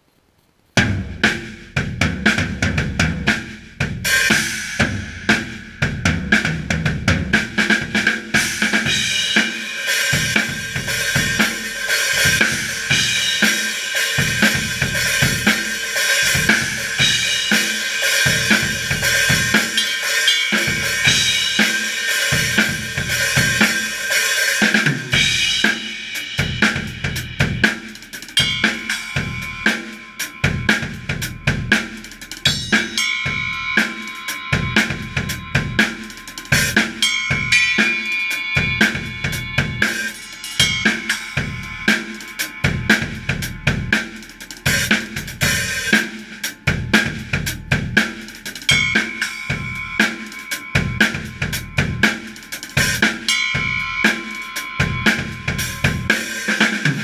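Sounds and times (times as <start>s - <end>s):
kick drum snare and toms: 0.8s - 9.4s
cymbal crashes and hi-hat: 0.8s - 57.0s.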